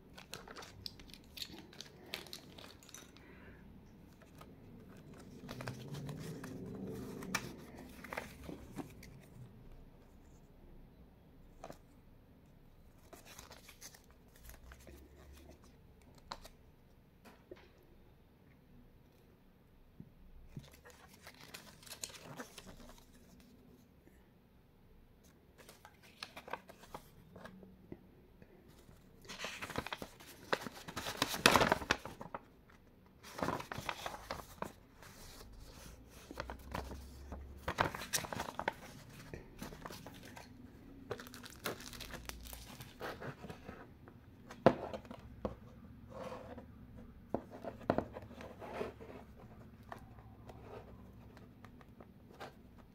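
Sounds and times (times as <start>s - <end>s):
paper rustling and crinkling: 0.1s - 3.5s, 4.1s - 9.4s, 13.0s - 16.6s, 20.5s - 23.6s, 25.6s - 27.6s, 28.7s - 32.5s, 33.2s - 43.9s.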